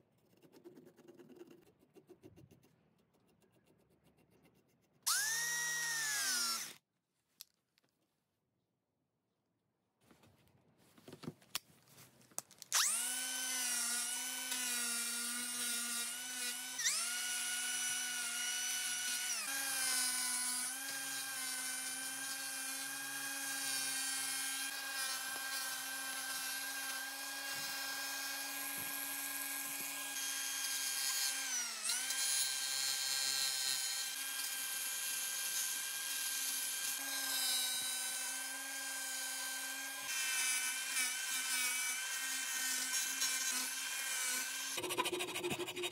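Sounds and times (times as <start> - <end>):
angle grinder grinding wood: 5.1 - 6.8, 12.7 - 45.9.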